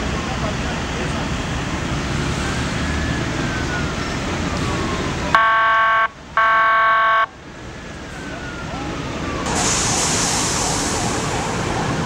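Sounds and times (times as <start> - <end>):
road noise: 0.0 - 12.0
faint siren falling in pitch: 3.0 - 7.4
emergency vehicle horn blasts: 5.3 - 7.4.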